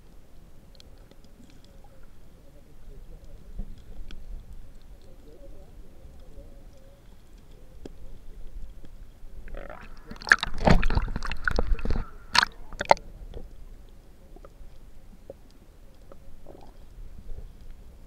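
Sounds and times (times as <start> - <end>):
muffled underwater hiss: 0.0 - 18.0
water sloshing: 9.3 - 13.7
sharp water splashes: 9.5 - 13.0.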